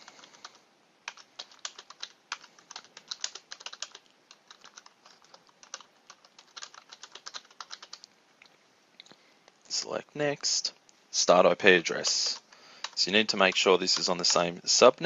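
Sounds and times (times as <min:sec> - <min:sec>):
keyboard typing: 0:00.0 - 0:08.1, 0:12.3 - 0:14.5.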